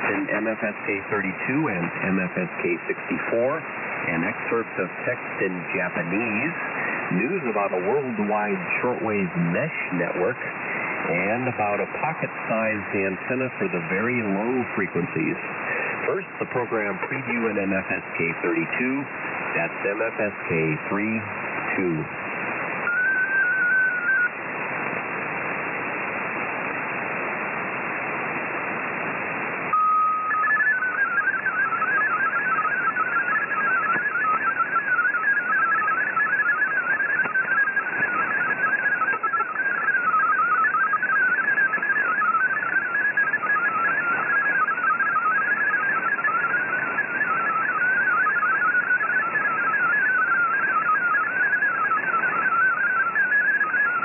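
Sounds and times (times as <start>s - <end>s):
radio static hiss: 0.0s - 54.0s
brief tone: 22.9s - 24.4s, 29.7s - 54.0s
warble of rapidly hopping beeps: 22.9s - 24.4s, 29.7s - 54.0s.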